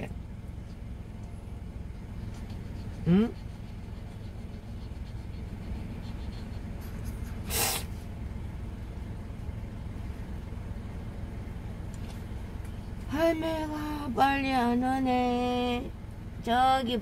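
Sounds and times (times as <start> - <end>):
car idling hum: 0.0 - 17.0
dog sneezing: 6.9 - 8.0.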